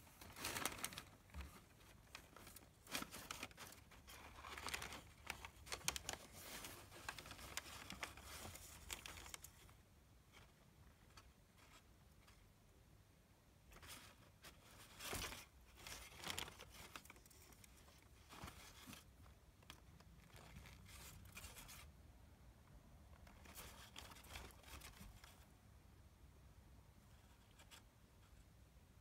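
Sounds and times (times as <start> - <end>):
packing paper rustling: 0.0 - 9.8, 13.8 - 21.9, 23.2 - 25.4.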